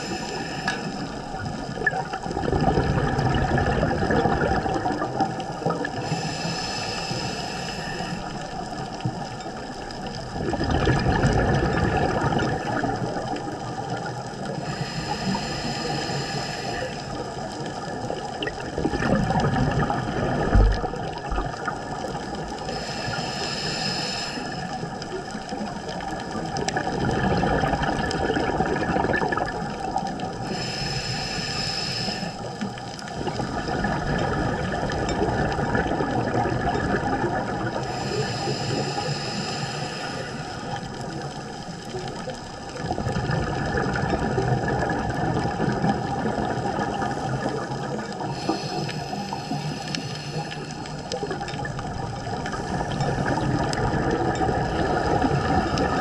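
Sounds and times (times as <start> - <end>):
regulator inhale hiss: 0.0 - 1.4, 5.8 - 9.0, 14.3 - 17.9, 22.4 - 25.3, 30.3 - 33.7, 37.7 - 42.1, 47.0 - 51.6
exhaled air bubbling: 0.0 - 56.0.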